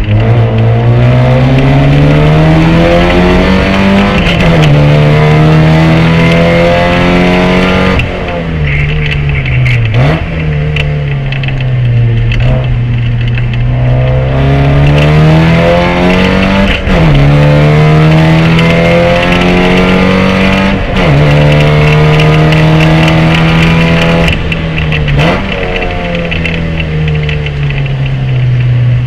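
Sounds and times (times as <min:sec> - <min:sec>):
race car engine accelerating: 0:00.0 - 0:28.7.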